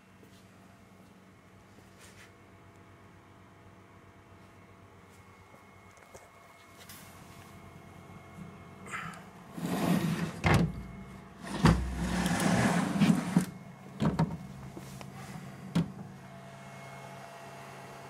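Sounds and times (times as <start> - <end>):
cooling fans humming: 0.0 - 18.0
cover rubbing and scraping: 9.6 - 10.6, 11.4 - 13.5.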